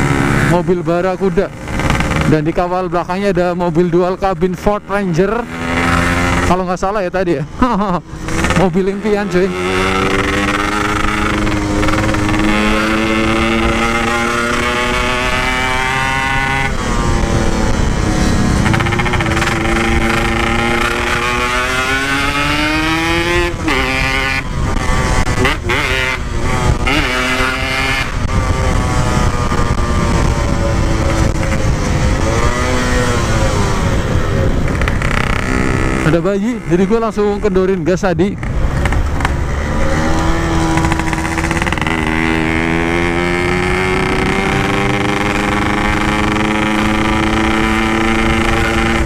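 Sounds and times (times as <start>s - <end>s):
motorcycle engine accelerating: 0.0s - 49.0s
wind on microphone: 8.0s - 37.5s.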